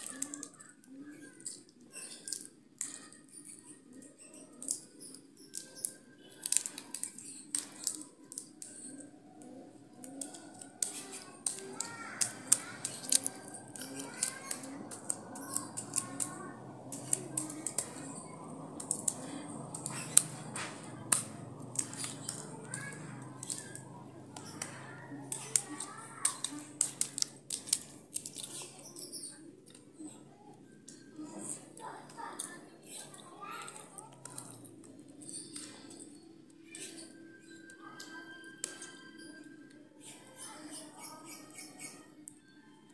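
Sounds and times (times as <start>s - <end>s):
murmur of voices: 7.8s - 36.5s
paper wrapper crackling: 10.1s - 23.8s.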